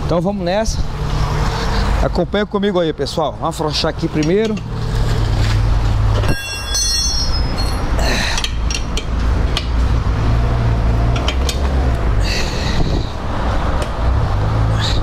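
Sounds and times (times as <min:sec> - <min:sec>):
sharp metal clinks: 0:06.2 - 0:09.0
high metallic squeal: 0:06.3 - 0:07.9.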